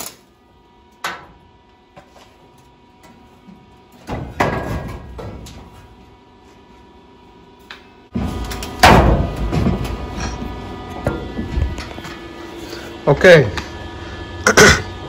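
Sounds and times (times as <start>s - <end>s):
hard metal bang: 8.8s - 10.2s.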